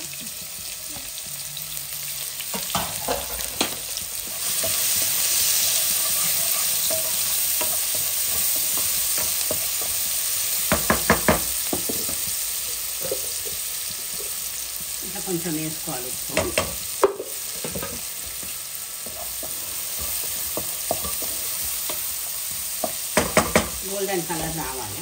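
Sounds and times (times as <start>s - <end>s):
onions sizzling in oil: 0.0s - 25.0s
spatula knocking against pan: 10.7s - 12.2s, 22.8s - 23.8s.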